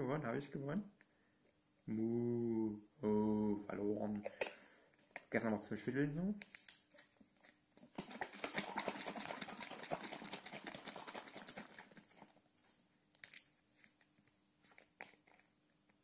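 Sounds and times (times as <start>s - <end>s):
milk sloshing in shaken bottle: 7.9s - 12.5s.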